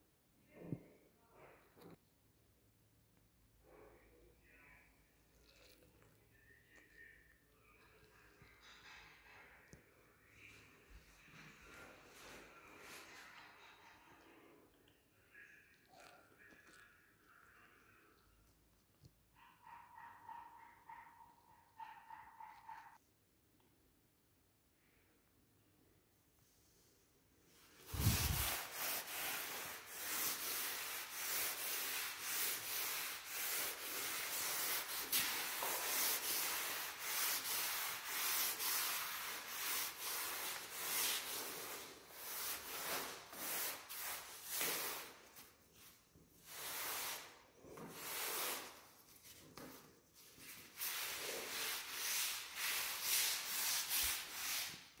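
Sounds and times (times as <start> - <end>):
cloth rag swishing on wood floor: 27.6 - 55.0.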